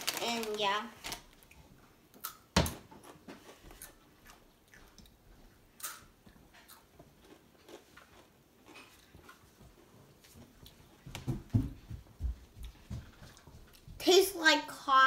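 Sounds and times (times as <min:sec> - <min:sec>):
child chewing: 0:01.0 - 0:11.1, 0:12.5 - 0:14.0.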